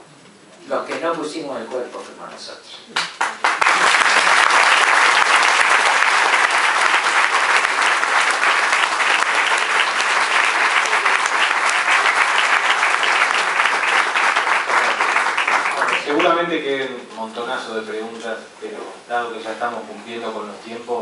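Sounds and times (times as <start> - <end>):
audience applauding: 3.0 - 16.5.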